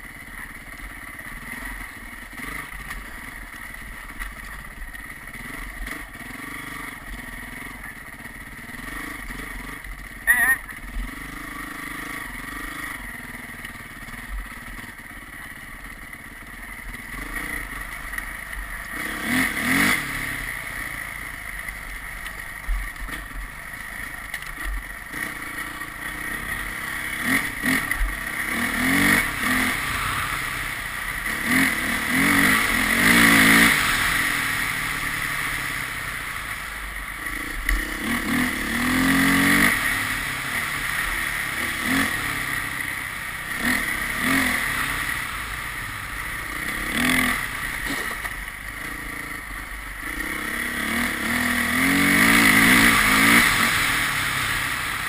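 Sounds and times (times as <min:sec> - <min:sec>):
vehicle engine revving: 0:05.3 - 0:14.8, 0:16.8 - 0:22.0, 0:22.6 - 0:55.0
steady rushing noise: 0:11.1 - 0:55.0.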